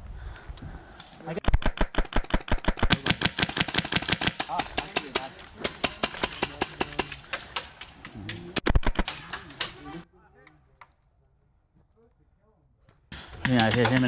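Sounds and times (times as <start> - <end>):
airsoft gunfire: 1.4 - 7.8, 8.6 - 9.8.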